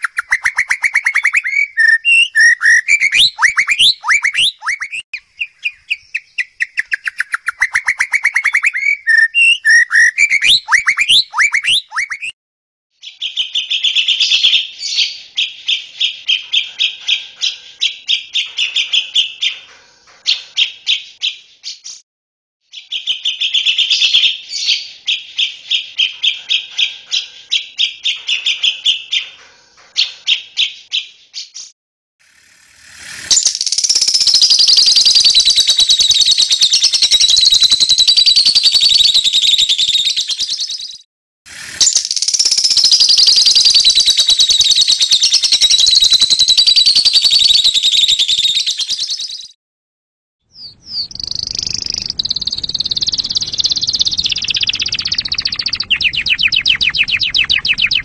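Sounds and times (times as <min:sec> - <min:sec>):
bird song of fast repeated notes: 0:00.0 - 0:12.4, 0:13.0 - 0:22.0, 0:22.6 - 0:31.8, 0:32.4 - 0:49.6, 0:50.5 - 0:58.0
bird's varied gliding song: 0:00.0 - 0:12.4, 0:50.5 - 0:58.0
lovebirds chattering shrilly: 0:50.6 - 0:58.0.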